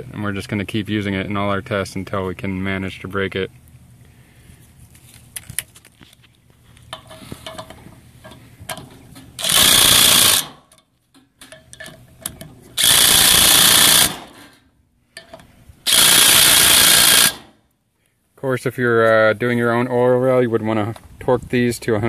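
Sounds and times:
impact driver hammering: 9.4s - 10.7s, 12.8s - 14.5s, 15.2s - 17.6s.

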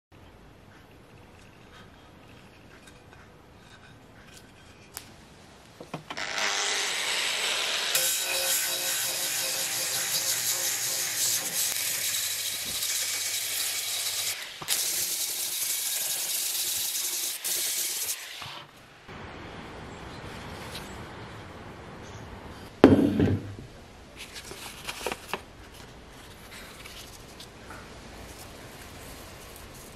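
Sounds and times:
angle grinder grinding wood: 6.2s - 18.7s.

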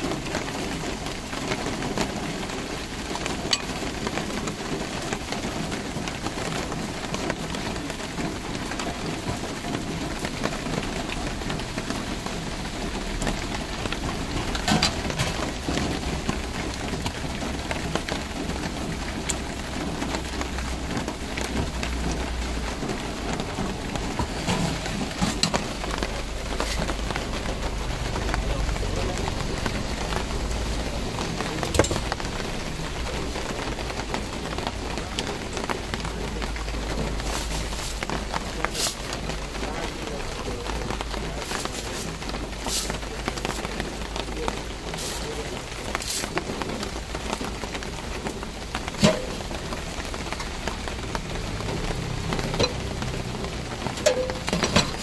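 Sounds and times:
street stall background hiss: 0.0s - 55.0s
steel utensils clinking: 3.5s - 3.8s.

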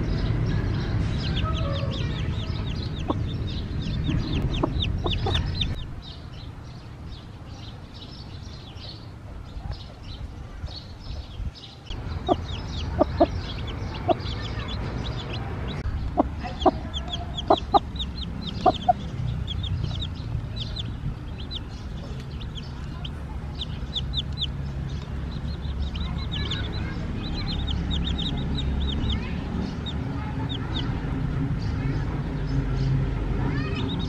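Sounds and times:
chicks peeping: 0.0s - 6.4s, 7.1s - 34.0s
hen clucking: 1.2s - 5.8s, 11.9s - 24.6s, 25.2s - 30.9s.

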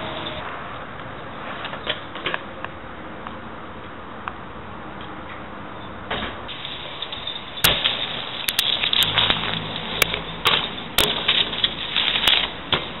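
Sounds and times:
bike tyres rolling on pavement: 0.0s - 13.0s
bike knocking on ground: 7.6s - 13.0s.

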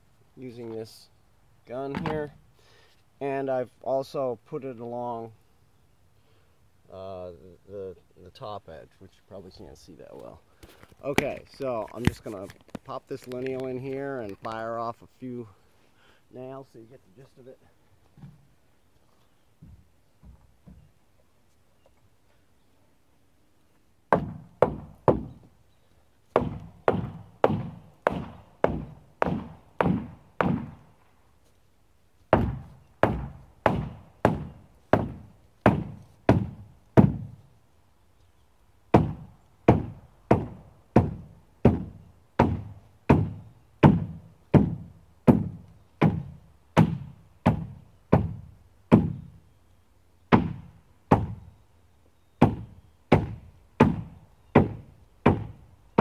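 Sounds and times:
hammer knocking on wood: 24.1s - 25.4s, 26.4s - 30.8s, 32.4s - 37.4s, 39.0s - 49.3s, 50.3s - 51.4s, 52.4s - 55.6s.

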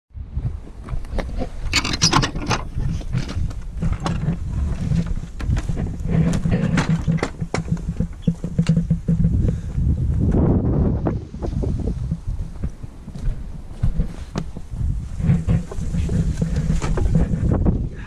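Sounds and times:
wind rumbling on microphone: 0.1s - 18.0s
footsteps crunching on gravel: 11.4s - 17.4s.

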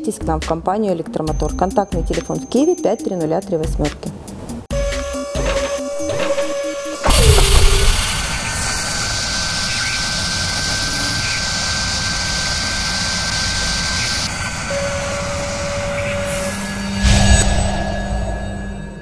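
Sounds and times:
thin high whine: 5.2s - 19.0s
low hum: 5.9s - 19.0s
loud hit: 6.1s - 9.6s
jet-like rushing noise: 7.0s - 14.6s.

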